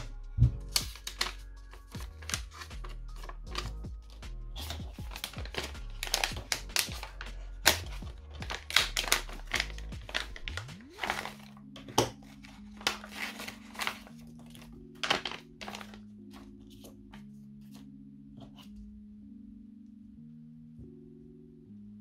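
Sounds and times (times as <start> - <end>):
background music: 0.0 - 22.0
plastic pouch crinkling: 4.6 - 16.1.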